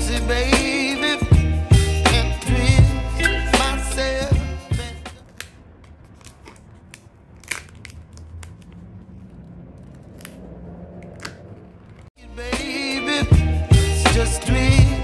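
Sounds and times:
plastic film crinkling: 5.2 - 10.4.

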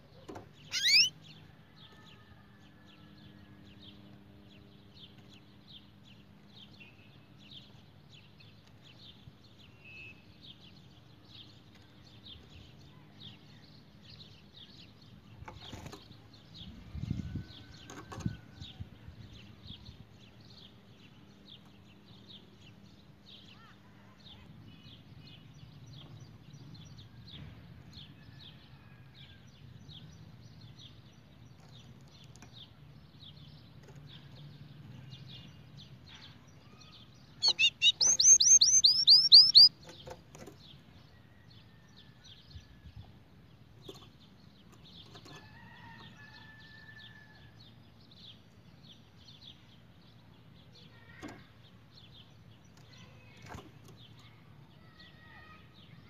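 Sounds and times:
canary chirping: 0.6 - 1.2, 37.4 - 39.8
canary trill: 0.6 - 1.2, 37.4 - 39.8.

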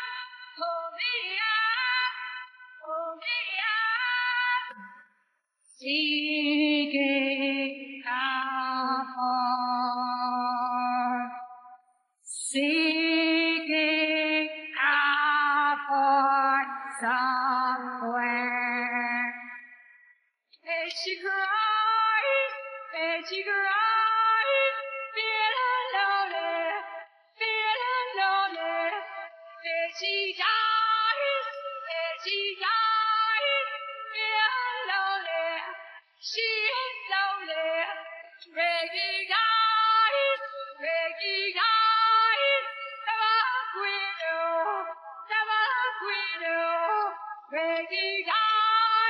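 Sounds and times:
woman singing: 0.0 - 5.0, 5.7 - 11.6, 12.3 - 19.8, 20.6 - 49.0.

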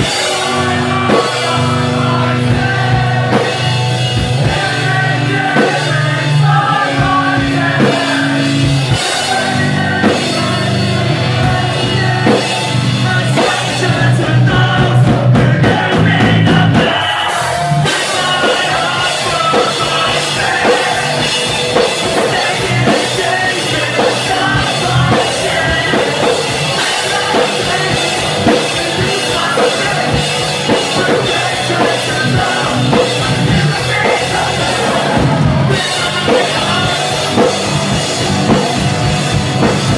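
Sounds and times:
person singing: 0.0 - 38.8
drums: 0.0 - 39.9
electric guitars: 0.0 - 39.9
low bass notes: 0.0 - 39.9.

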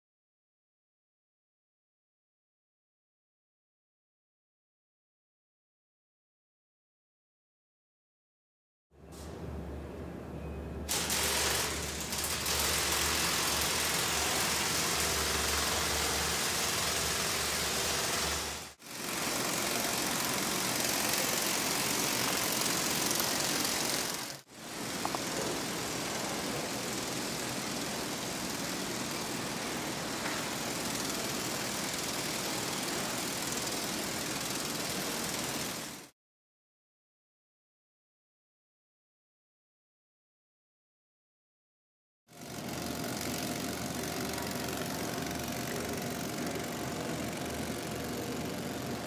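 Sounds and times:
ornithopter motor and wings buzzing: 10.9 - 36.1, 42.4 - 49.0.

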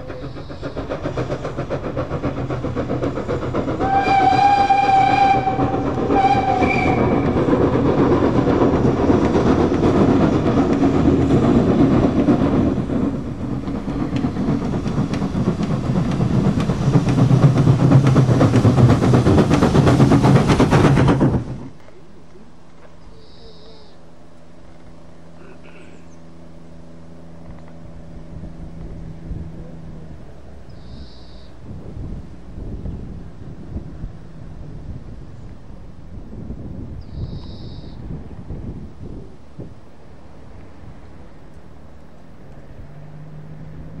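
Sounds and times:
steam locomotive exhaust beating: 0.0 - 44.0
steam whistle blowing: 3.8 - 7.4.

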